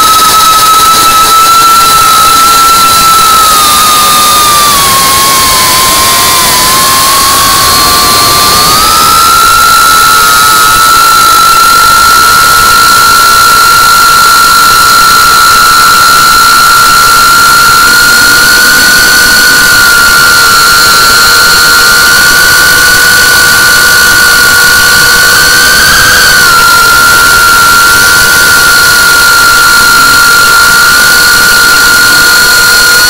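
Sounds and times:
quadcopter motors whining: 0.0s - 21.6s.

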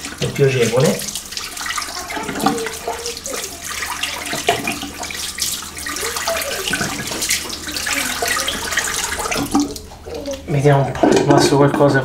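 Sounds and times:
water splashing by hand: 0.0s - 11.3s
tap running into sink: 0.0s - 12.0s.

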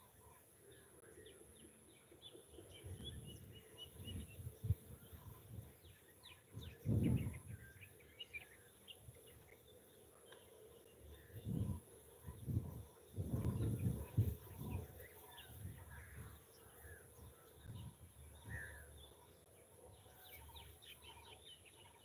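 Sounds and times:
birds chirping: 0.0s - 22.0s.

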